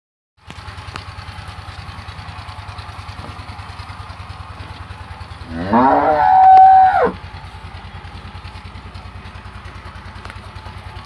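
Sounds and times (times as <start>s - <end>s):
small engine running: 0.4s - 11.0s
cow mooing: 5.4s - 7.2s.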